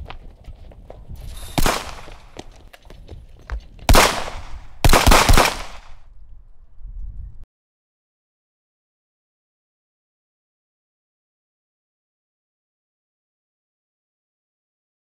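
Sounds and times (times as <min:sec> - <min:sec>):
running footsteps: 0:00.0 - 0:04.6.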